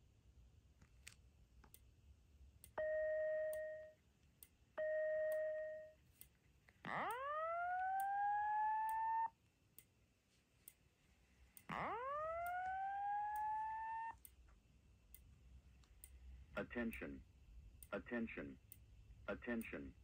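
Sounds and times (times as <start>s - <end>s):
fire alarm beeps: 2.8s - 4.0s, 4.8s - 6.0s
fire alarm rising whoop: 6.9s - 9.3s, 11.7s - 14.2s
faint ticking: 13.3s - 20.0s.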